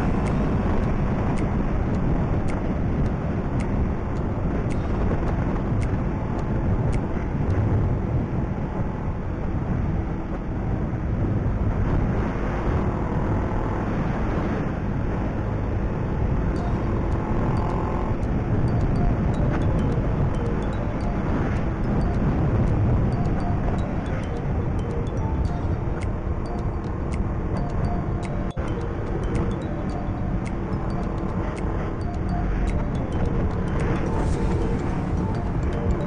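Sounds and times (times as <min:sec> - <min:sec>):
motorcycle engine and road noise: 0:00.0 - 0:36.0
faint ticks: 0:00.1 - 0:07.6, 0:16.6 - 0:36.0.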